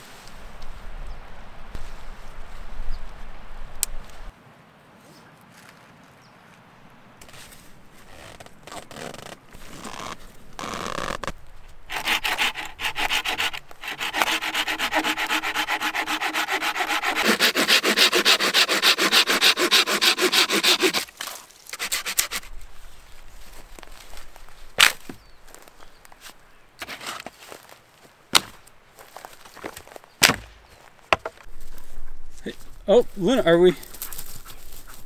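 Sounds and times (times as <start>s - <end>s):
fast rhythmic scraping: 11.9s - 21.1s.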